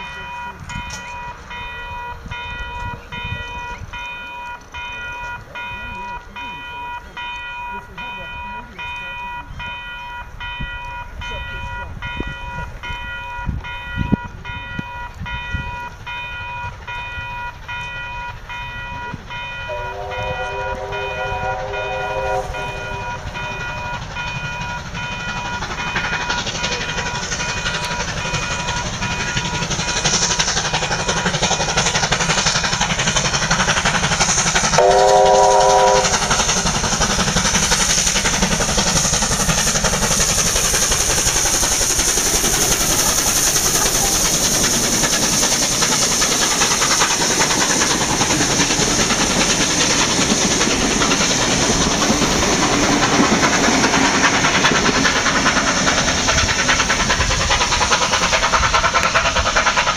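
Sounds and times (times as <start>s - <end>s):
steam locomotive whistle: 0.0s - 30.2s, 34.7s - 36.7s
level crossing warning bells: 0.0s - 33.9s, 34.8s - 37.3s
train running rumble: 0.0s - 59.9s.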